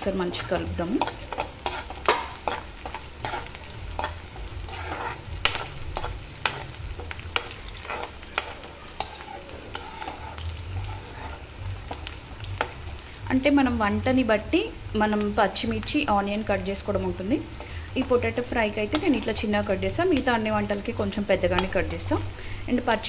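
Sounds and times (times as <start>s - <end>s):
frying sizzle: 0.0s - 23.0s
spoon scraping metal pan: 0.4s - 12.8s.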